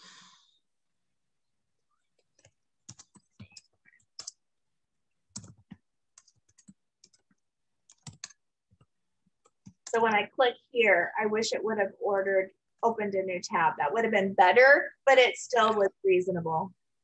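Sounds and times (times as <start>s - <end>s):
faint computer clicking: 2.1s - 4.4s, 5.3s - 10.2s.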